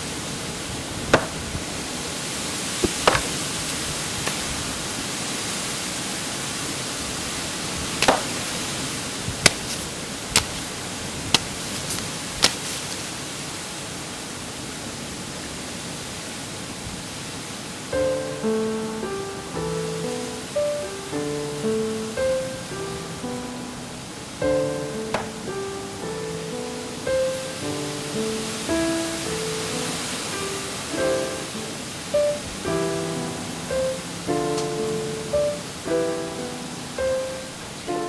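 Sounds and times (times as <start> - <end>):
wind buffeting microphone: 0.6 - 5.1
stick striking tree branches: 1.1 - 1.4, 2.8 - 3.6, 8.0 - 8.8, 9.4 - 13.0, 25.1 - 25.4.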